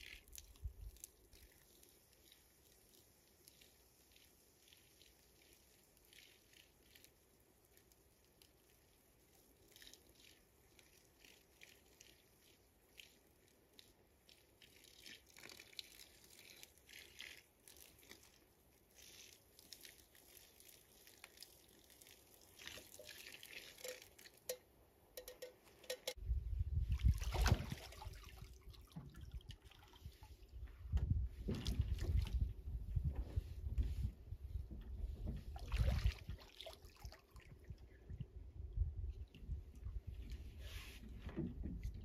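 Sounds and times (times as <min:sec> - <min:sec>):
handling clicks and rustles: 0:25.2 - 0:26.2.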